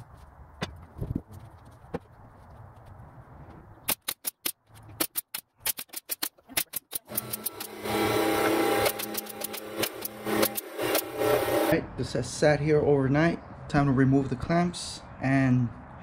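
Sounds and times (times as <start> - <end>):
nail gun firing: 3.9 - 11.7.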